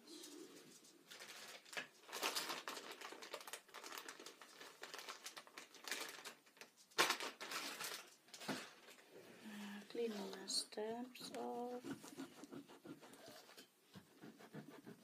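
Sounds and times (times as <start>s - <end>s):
paper tissue rustling: 0.1s - 9.1s
tissue crackle: 1.1s - 9.0s.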